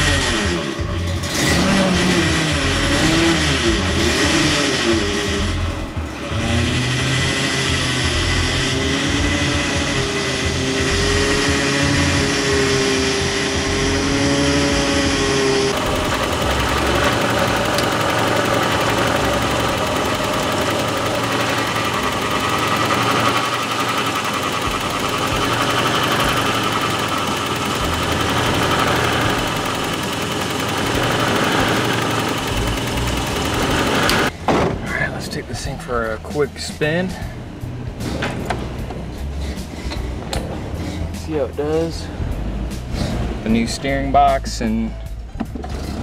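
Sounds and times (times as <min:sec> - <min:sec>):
car engine idling: 0:00.0 - 0:46.0
steady whining tone: 0:02.1 - 0:34.3.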